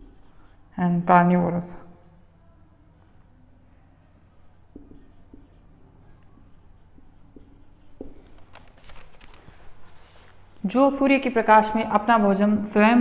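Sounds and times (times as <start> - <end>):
marker squeaking on whiteboard: 4.0 - 5.7, 6.3 - 8.8.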